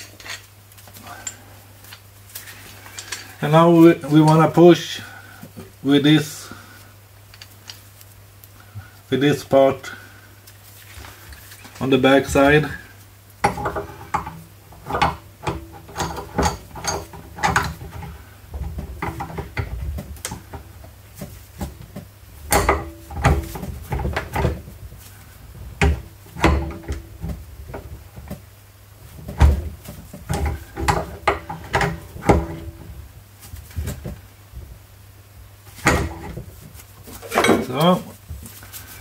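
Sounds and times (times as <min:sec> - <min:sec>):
metallic clicks and knocks: 0:13.4 - 0:20.4, 0:30.3 - 0:32.8.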